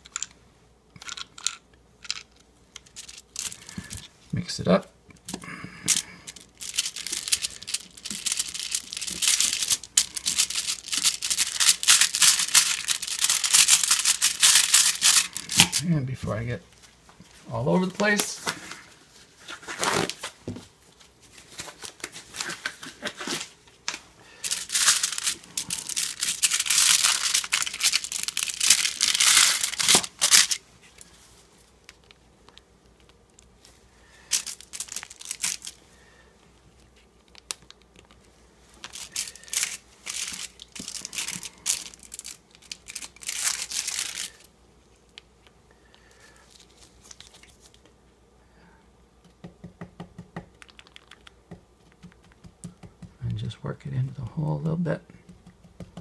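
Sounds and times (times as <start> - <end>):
plastic bag crinkling: 1.2 - 4.1, 5.8 - 15.9, 24.4 - 35.9, 36.7 - 44.5, 46.1 - 47.9.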